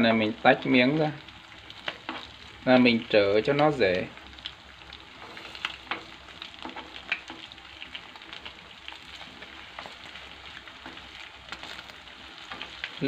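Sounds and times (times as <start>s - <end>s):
fish sizzling in oil: 0.0s - 13.0s
utensils clicking in pan: 1.7s - 2.9s, 4.4s - 13.0s.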